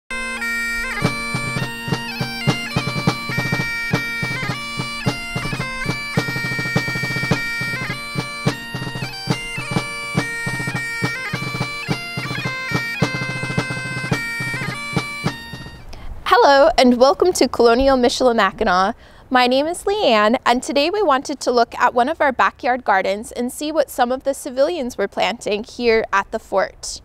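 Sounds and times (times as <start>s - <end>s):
steady drone: 0.1s - 15.9s
bagpipe-style melody: 0.1s - 16.0s
regular drum beat: 0.1s - 16.0s.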